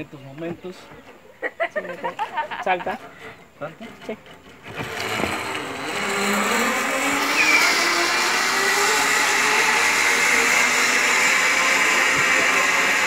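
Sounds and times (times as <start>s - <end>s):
zipline pulleys whirring on cable: 3.8s - 13.0s.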